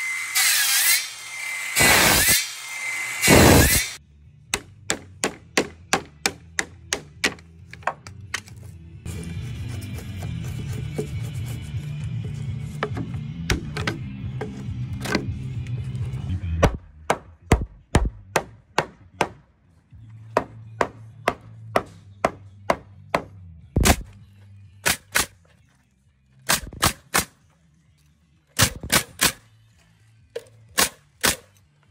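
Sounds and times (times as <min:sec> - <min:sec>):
nail gun shots: 0:03.2 - 0:04.0, 0:23.8 - 0:24.1, 0:24.8 - 0:25.4, 0:26.4 - 0:27.4, 0:28.6 - 0:29.4, 0:30.8 - 0:31.5
claw hammer knocking wood: 0:04.5 - 0:08.2
hammer striking chisel in wood: 0:04.6 - 0:08.1.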